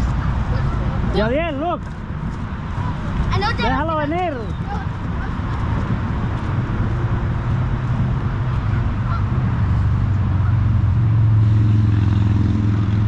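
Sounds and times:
low engine drone: 5.2 - 13.0.

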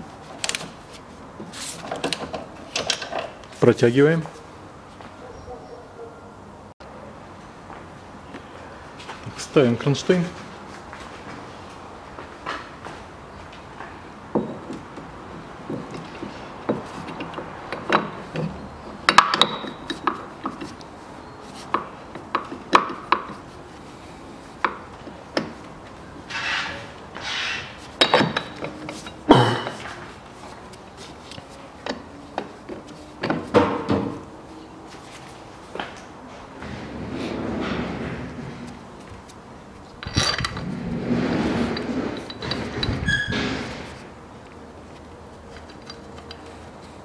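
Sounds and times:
short scraping rub: 26.3 - 28.0.

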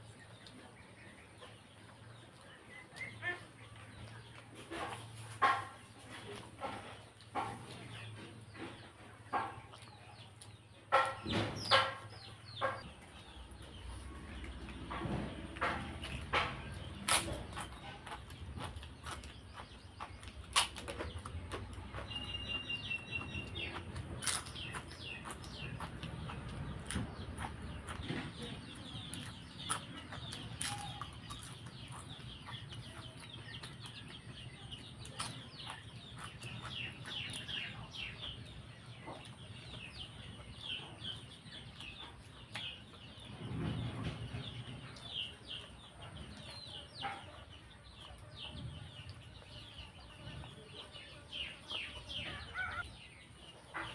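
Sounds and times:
birds chirping: 0.0 - 53.9
crunching and chewing: 0.0 - 53.9.

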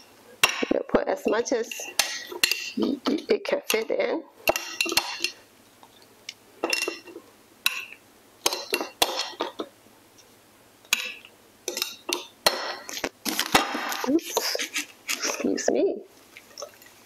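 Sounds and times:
metal tongs clinking on glass: 1.3 - 2.8, 4.5 - 5.4, 6.6 - 9.6, 10.9 - 12.9.

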